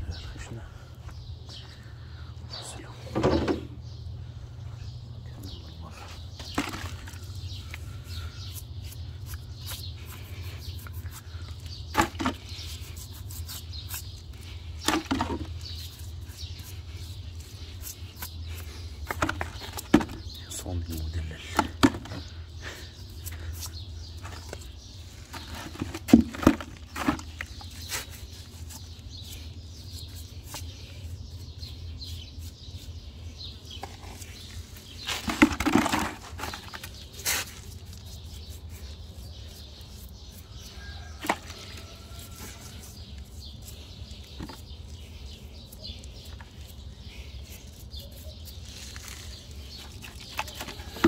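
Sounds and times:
brush scrubbing horse leg: 6.4 - 21.0, 22.9 - 26.2, 26.8 - 35.4, 36.1 - 51.0.

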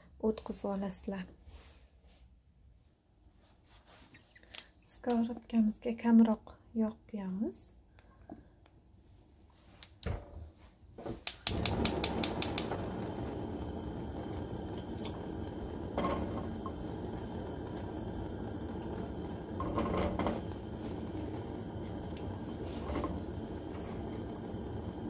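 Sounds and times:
gas burner rushing: 11.1 - 25.0
gas stove igniter clicking: 11.2 - 25.0
food sizzling in a pan: 11.4 - 25.0.

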